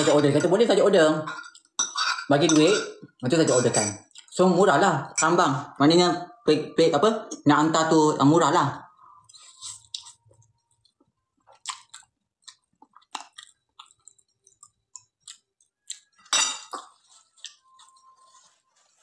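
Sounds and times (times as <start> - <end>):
person chewing noodles: 9.2 - 18.6.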